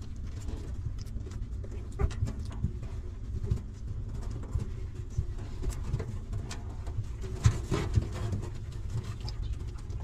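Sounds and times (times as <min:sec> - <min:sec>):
steady low rumble: 0:00.0 - 0:07.4.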